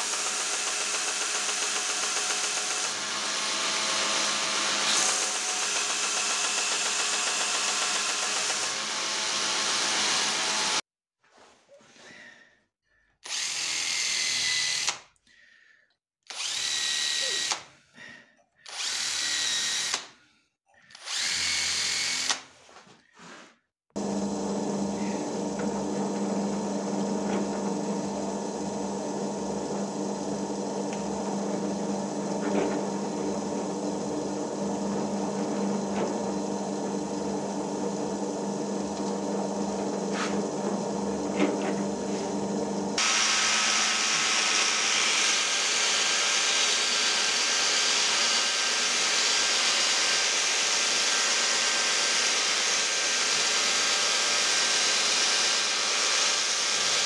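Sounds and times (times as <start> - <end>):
belt grinder grinding wood: 0.0 - 10.8, 23.9 - 57.0
hand drill whining: 0.0 - 10.8, 13.2 - 15.1, 16.2 - 17.7, 18.6 - 20.2, 20.8 - 22.5, 23.9 - 57.0
drill press humming: 24.0 - 46.7.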